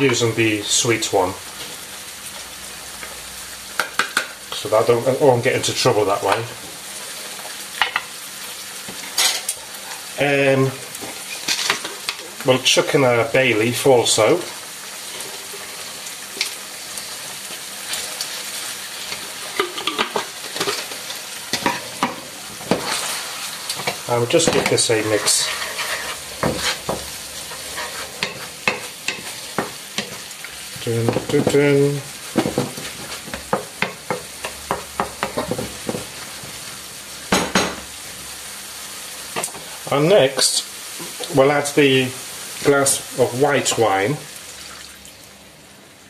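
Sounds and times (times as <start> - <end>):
food sizzling in oil: 0.0 - 46.0
wooden spoon scraping a pan: 17.8 - 36.7.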